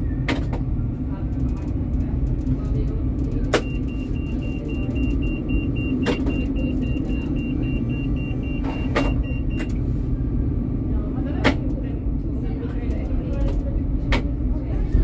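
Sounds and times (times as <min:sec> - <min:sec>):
tram rumbling: 0:00.0 - 0:15.0
rapid beeping: 0:03.6 - 0:09.7.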